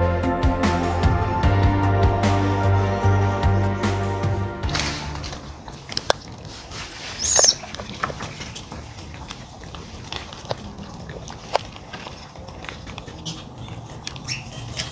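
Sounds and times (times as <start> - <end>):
monkey squeak: 7.1 - 7.7, 14.3 - 14.6.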